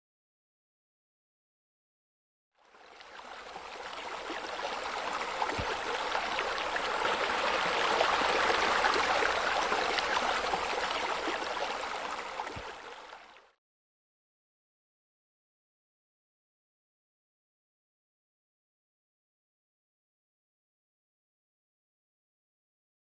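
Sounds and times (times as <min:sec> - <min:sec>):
water babbling: 0:02.6 - 0:13.6.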